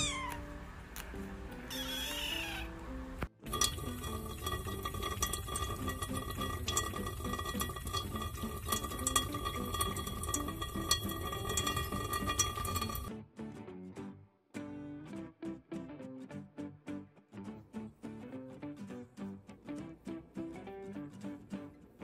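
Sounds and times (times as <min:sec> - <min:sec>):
kitten meowing: 0:00.0 - 0:00.6, 0:01.6 - 0:02.8
soft music: 0:00.0 - 0:22.0
water clinks and drips: 0:03.4 - 0:13.1
tap running into metal sink: 0:03.5 - 0:13.1.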